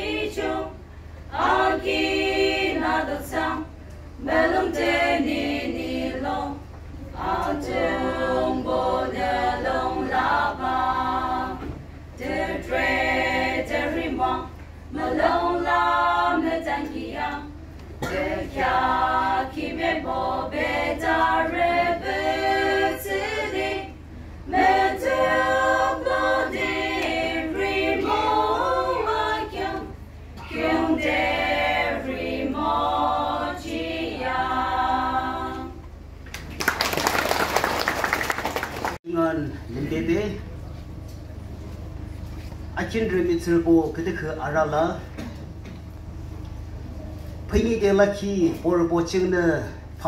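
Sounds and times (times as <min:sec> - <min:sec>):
women's choir singing: 0:00.0 - 0:35.9
audience applause: 0:36.3 - 0:39.0.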